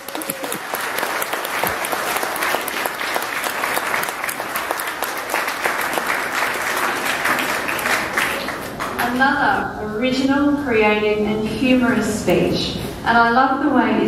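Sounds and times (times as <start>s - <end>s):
children applauding: 0.0s - 9.0s.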